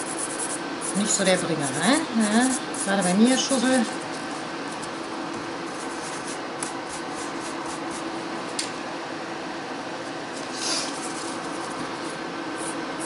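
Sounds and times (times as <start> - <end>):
extractor fan whooshing: 3.5 - 13.0.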